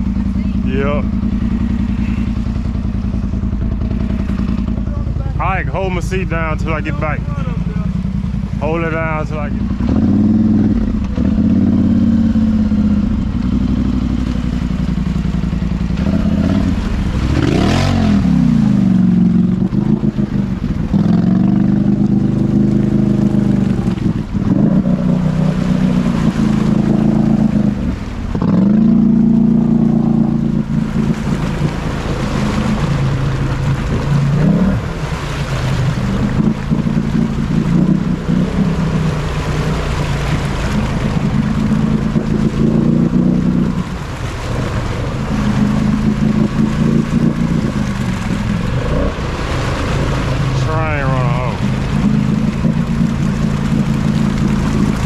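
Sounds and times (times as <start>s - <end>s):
atv engine revving: 0.0s - 55.0s.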